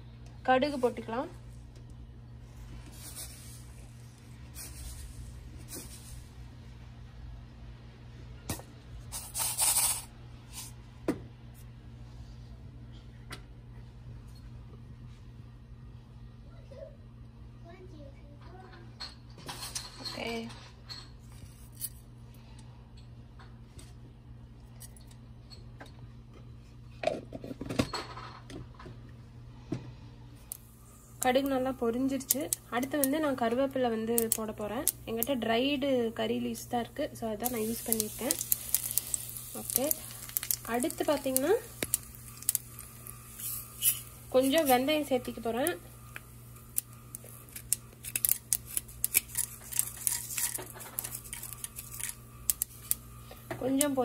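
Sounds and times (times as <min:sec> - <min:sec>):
low steady hum: 0:00.0 - 0:09.4, 0:10.1 - 0:54.0
steady low hum: 0:28.7 - 0:54.0
mustard seeds popping in oil: 0:30.5 - 0:54.0.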